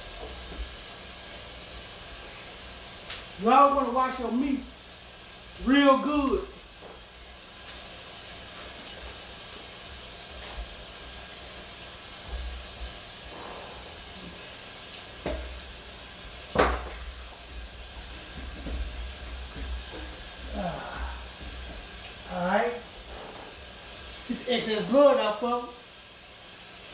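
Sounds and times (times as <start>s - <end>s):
tap water running into sink: 14.1s - 25.0s.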